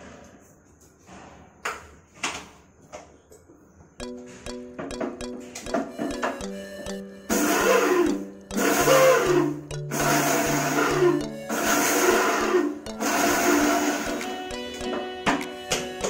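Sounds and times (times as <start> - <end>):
background music: 4.0 - 16.0
mixer grinder running: 7.3 - 14.4.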